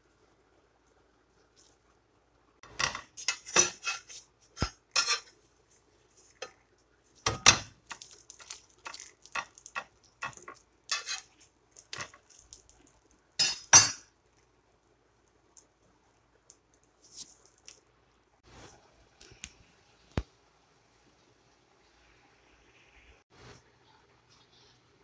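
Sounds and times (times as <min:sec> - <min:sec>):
kitchen utensils clattering: 0:02.6 - 0:05.4, 0:07.2 - 0:12.2, 0:13.4 - 0:14.1.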